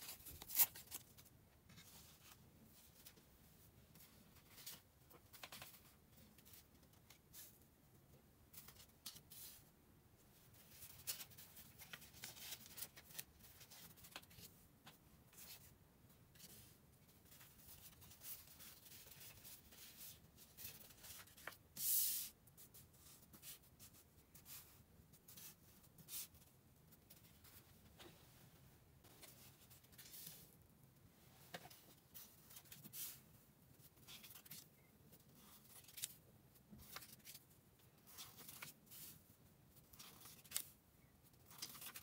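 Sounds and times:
paper cards rustling and tapping: 4.4 - 7.2, 36.8 - 37.4, 41.5 - 42.0.

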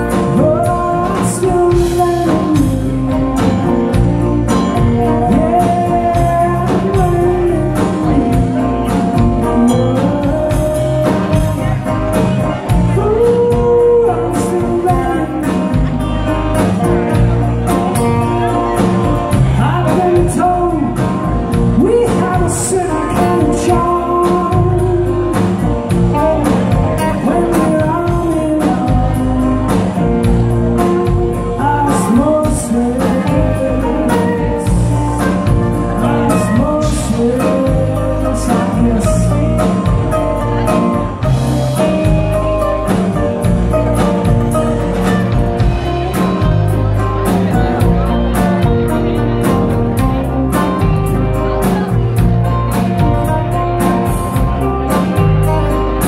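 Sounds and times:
male lead vocal: 0.0 - 42.2
drums: 0.0 - 56.0
electric guitars: 0.0 - 56.0
keyboard: 0.0 - 56.0.

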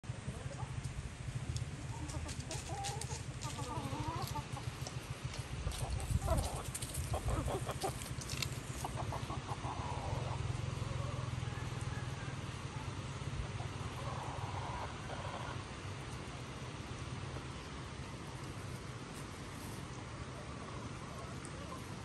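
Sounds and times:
steady low hum: 0.0 - 22.0
chickens clucking: 0.1 - 22.0.

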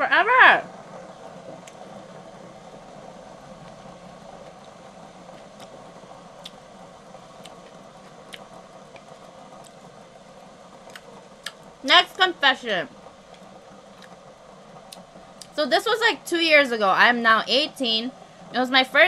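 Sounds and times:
steady low hum: 0.0 - 19.0
quiet chewing: 4.4 - 5.8, 6.4 - 6.7, 7.3 - 9.9, 10.8 - 11.7, 13.3 - 15.6.

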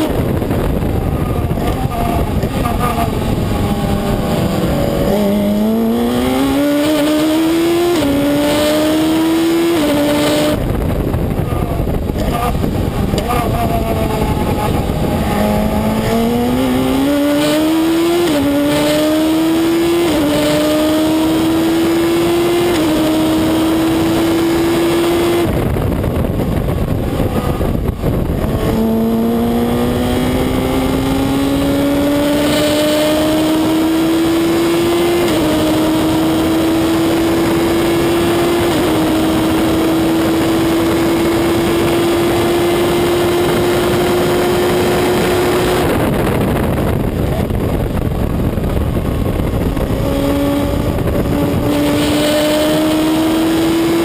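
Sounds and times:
racing car engine accelerating: 0.0 - 54.0
wind and road noise: 0.0 - 54.0.

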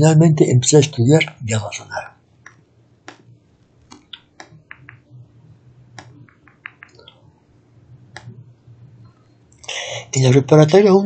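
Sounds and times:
low steady hum: 0.0 - 11.0
faint clicks: 6.0 - 7.2.

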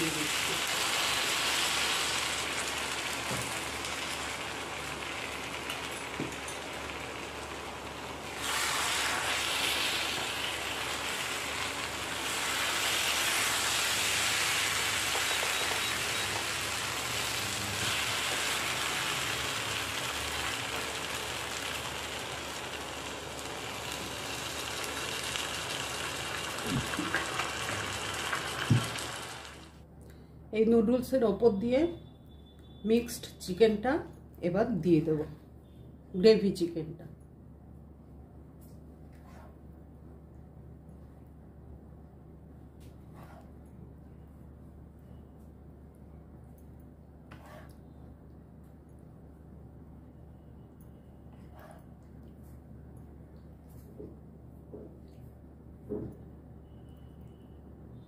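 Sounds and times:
gravy sizzling in a wok: 0.0 - 29.8.

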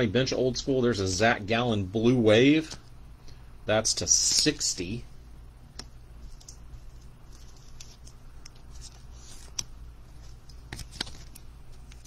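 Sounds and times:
low steady hum: 0.0 - 12.0
cards rustling and clicking: 5.8 - 12.0.

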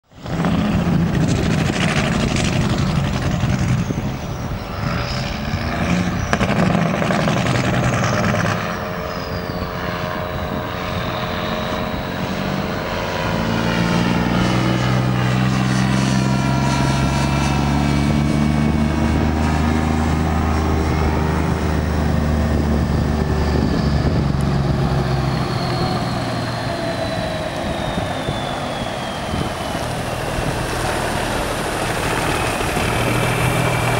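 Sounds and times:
truck diesel engine pulling hard: 0.0 - 33.9.

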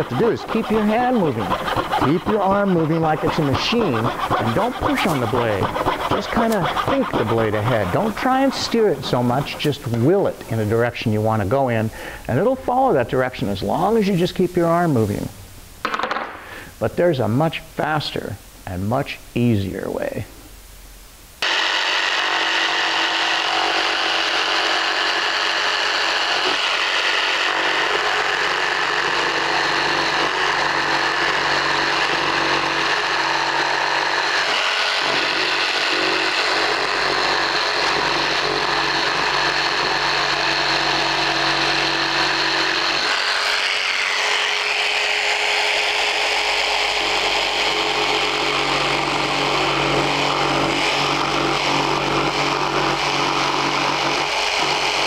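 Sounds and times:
jigsaw cutting wood: 0.0 - 10.0, 21.4 - 55.0.

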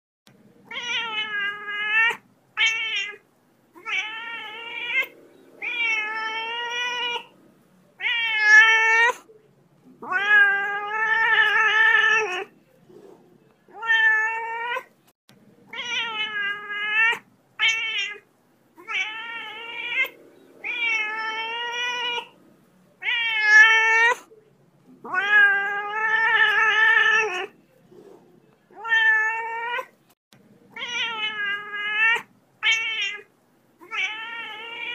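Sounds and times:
cat meowing and yowling: 0.7 - 3.2, 3.8 - 7.3, 8.0 - 9.2, 10.0 - 12.5, 13.7 - 14.9, 15.7 - 18.2, 18.8 - 22.4, 23.0 - 24.3, 25.0 - 27.6, 28.7 - 29.9, 30.8 - 34.9.

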